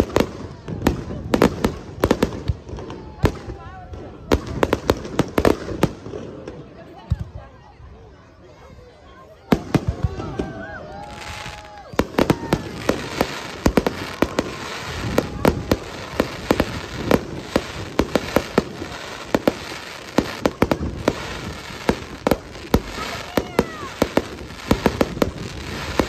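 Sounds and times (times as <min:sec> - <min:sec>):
crackle of firework stars: 0:09.8 - 0:26.0
firework shells bursting: 0:12.0 - 0:26.0.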